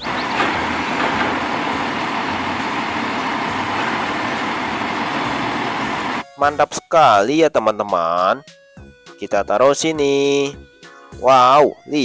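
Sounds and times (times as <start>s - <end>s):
mechanical arm lifting cart: 0.0s - 6.2s
garbage truck running: 0.0s - 6.6s.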